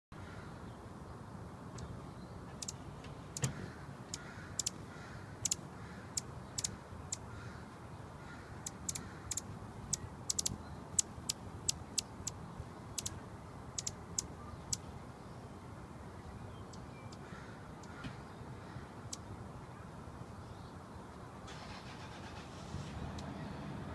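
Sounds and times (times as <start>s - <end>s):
low traffic rumble: 0.1s - 23.9s
hummingbird chip calls: 2.6s - 3.5s, 4.1s - 7.3s, 8.6s - 14.9s.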